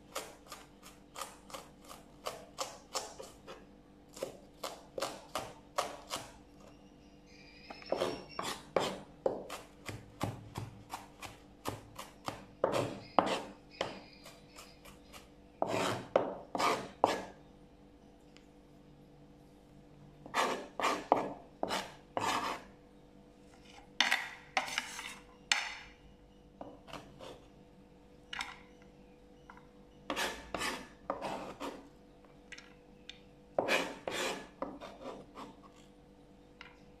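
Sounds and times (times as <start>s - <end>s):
utensils scraping cutting board: 7.8s - 9.6s, 12.0s - 17.3s, 20.2s - 22.7s, 24.6s - 25.3s, 30.1s - 31.8s, 33.6s - 35.9s.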